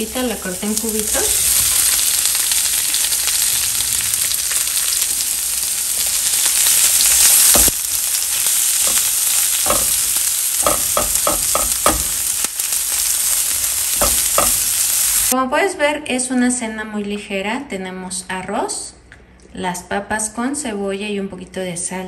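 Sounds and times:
potatoes sizzling in oil: 0.0s - 15.4s.

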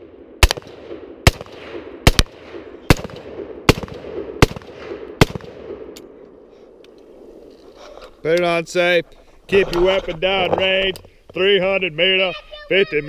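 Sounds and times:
rifle shots: 0.0s - 6.2s.

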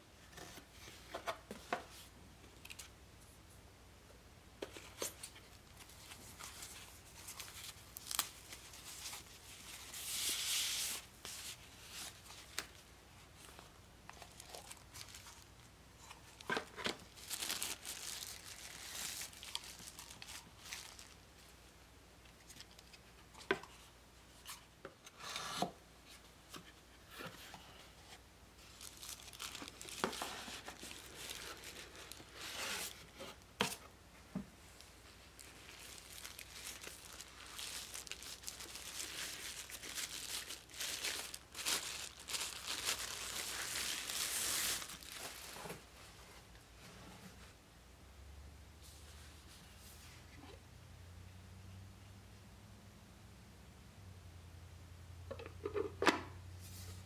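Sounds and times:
paper packing rustling: 4.7s - 12.8s, 16.2s - 21.2s, 28.6s - 33.8s, 34.8s - 45.9s.

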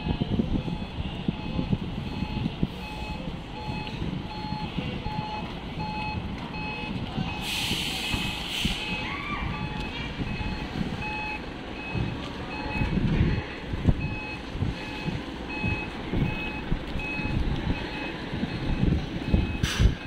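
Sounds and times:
truck backup alarm beeping: 0.0s - 20.0s
truck diesel engine running: 0.0s - 20.0s
short hiss: 7.4s - 8.8s.

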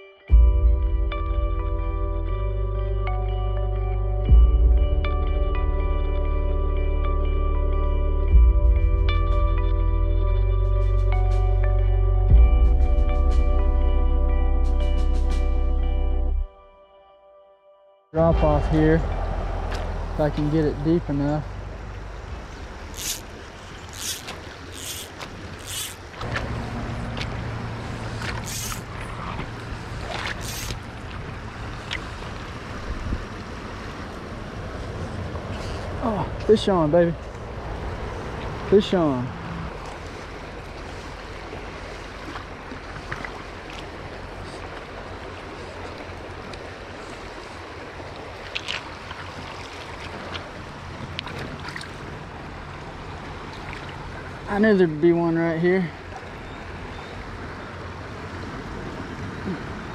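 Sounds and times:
running water: 18.2s - 59.9s
fish splashing: 22.5s - 32.8s
fly line swishing: 22.8s - 32.0s
wind rumble on microphone: 26.2s - 53.5s.

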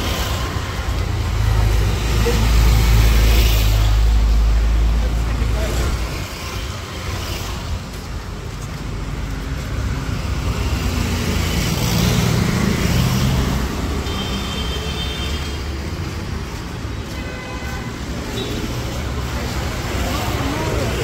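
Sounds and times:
road traffic: 0.0s - 21.0s.

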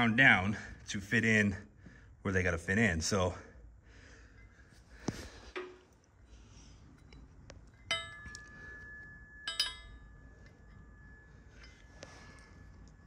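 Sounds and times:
steel parts clinking on metal: 7.0s - 12.1s.

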